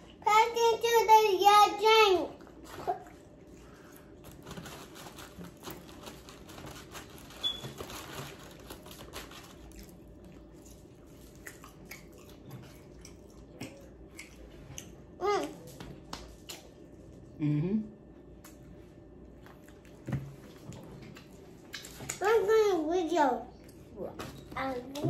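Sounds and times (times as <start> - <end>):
wet chewing: 2.6 - 15.2, 19.4 - 22.3.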